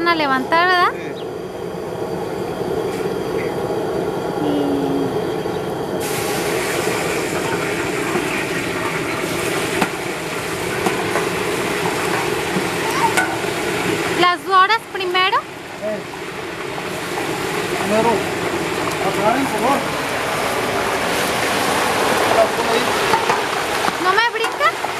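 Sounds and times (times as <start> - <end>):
gas burner rushing: 0.0 - 24.9
meat sizzling in hot fat: 6.0 - 24.9.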